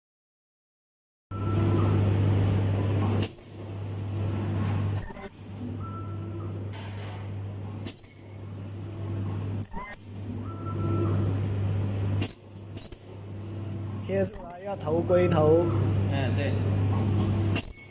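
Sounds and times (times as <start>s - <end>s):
machine humming: 1.3s - 17.9s
machine clicks: 12.2s - 13.1s.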